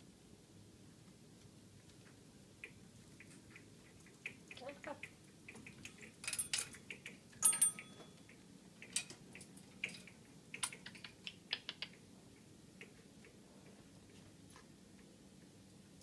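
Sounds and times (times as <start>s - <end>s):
parrot claws clicking on metal: 8.8s - 12.0s.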